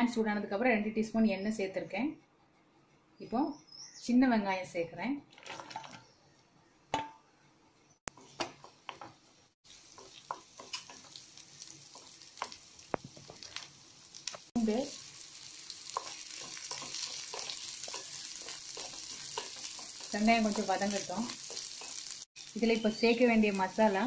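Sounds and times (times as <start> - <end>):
wooden spatula scraping a pan: 8.1 - 9.2, 15.9 - 22.2
shallots sizzling in hot oil: 8.1 - 24.0.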